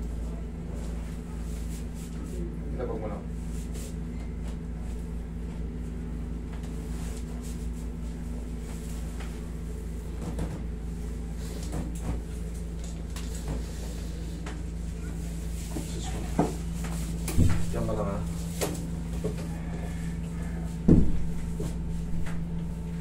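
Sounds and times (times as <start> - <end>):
air conditioner humming: 0.0 - 23.0.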